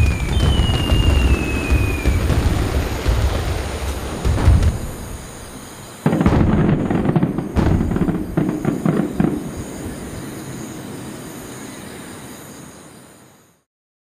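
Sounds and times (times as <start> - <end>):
firework burst: 0.0 - 10.6
fireworks crackling: 0.0 - 11.1.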